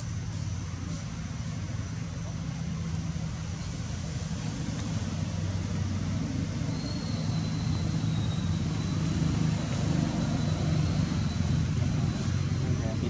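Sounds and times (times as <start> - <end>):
faint high whistle: 6.7 - 12.4.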